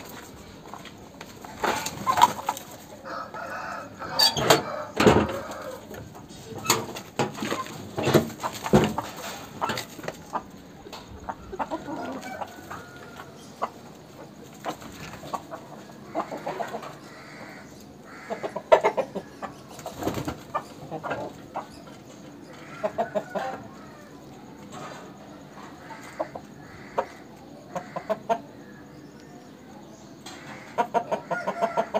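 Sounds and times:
rooster clucking: 0:00.0 - 0:28.7, 0:30.3 - 0:31.9.

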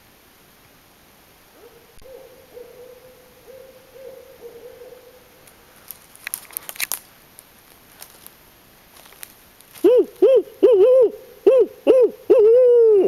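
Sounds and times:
owl hooting: 0:01.6 - 0:05.3, 0:09.8 - 0:13.0.

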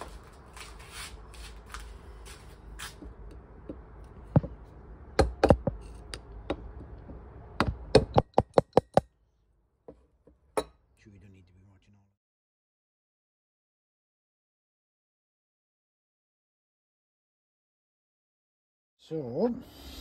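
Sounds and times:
sharp knocks: 0:03.7 - 0:04.6, 0:05.2 - 0:09.1.

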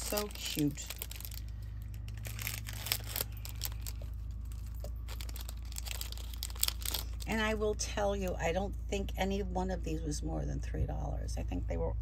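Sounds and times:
sharp crackles: 0:00.0 - 0:07.6
plastic packet crinkling and tearing: 0:00.0 - 0:07.8
steady low hum: 0:00.0 - 0:12.0.

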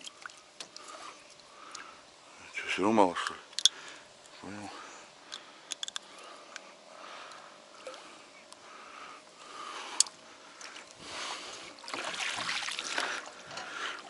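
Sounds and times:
oars splashing through water: 0:10.6 - 0:14.0.

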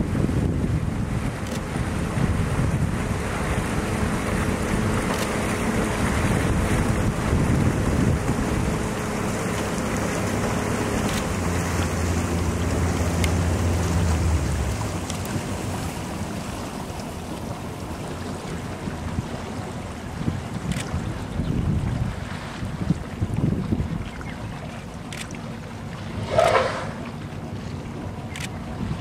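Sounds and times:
wind on microphone: 0:00.0 - 0:16.0, 0:18.8 - 0:24.7, 0:27.9 - 0:29.0
elephant wading through water: 0:00.0 - 0:29.0
river water flowing: 0:00.0 - 0:29.0.

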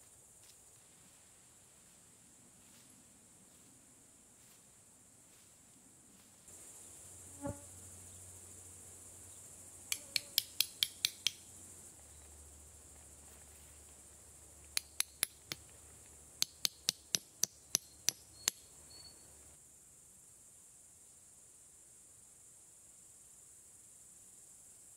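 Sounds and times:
insect buzz: 0:00.0 - 0:24.9
metal stake hammering taps: 0:09.9 - 0:11.4, 0:14.8 - 0:15.6, 0:16.4 - 0:18.6.

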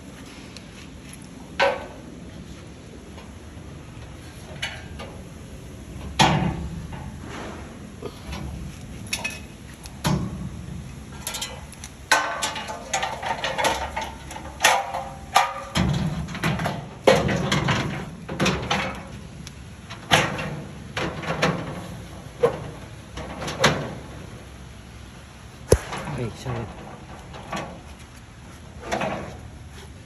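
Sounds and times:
metal parts knocking and clattering: 0:08.3 - 0:10.5, 0:11.1 - 0:19.2.

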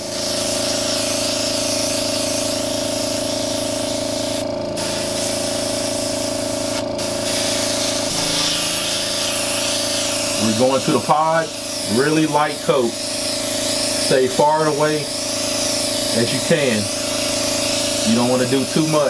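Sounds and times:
air compressor humming: 0:00.0 - 0:19.0
airbrush spraying hiss: 0:00.0 - 0:19.0.

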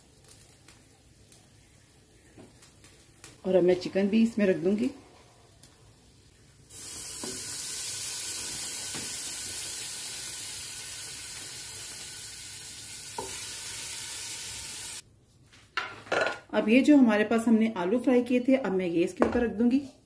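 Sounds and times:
chicken sizzling in hot oil: 0:00.0 - 0:15.0.

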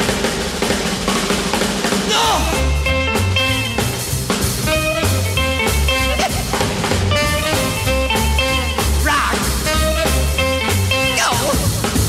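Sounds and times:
drum kit beat: 0:00.0 - 0:12.0
lead instrument bending notes: 0:02.5 - 0:11.2.

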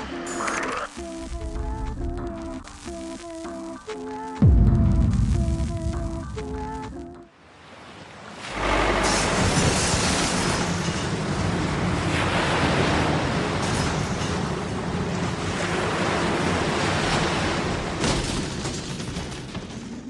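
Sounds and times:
loud steady rushing noise: 0:08.3 - 0:17.9.

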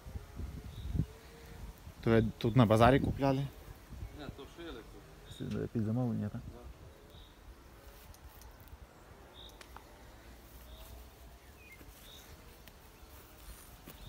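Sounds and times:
faint chirps and clicks: 0:07.0 - 0:09.9.

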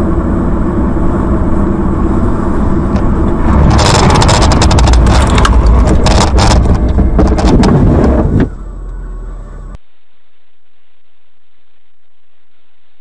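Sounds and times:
car rumbling through snow: 0:00.0 - 0:09.8
thumps cracks and scrapes: 0:03.5 - 0:08.5.

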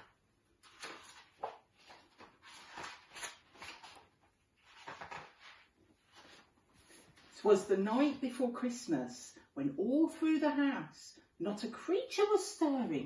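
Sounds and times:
book pages rustling: 0:00.0 - 0:07.5.

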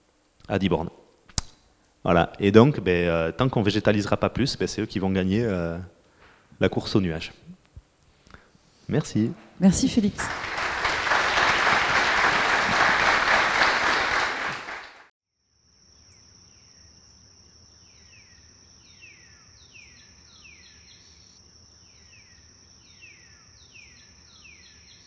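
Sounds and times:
audience applause: 0:10.2 - 0:15.1
high insect trill: 0:15.3 - 0:25.0
bird chirps: 0:17.7 - 0:25.0.

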